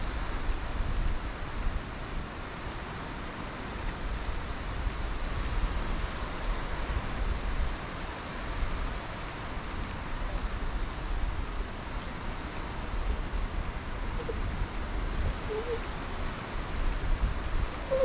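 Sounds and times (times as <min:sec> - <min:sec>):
distant surf: 0:00.0 - 0:18.0
wind buffeting microphone: 0:03.8 - 0:18.0.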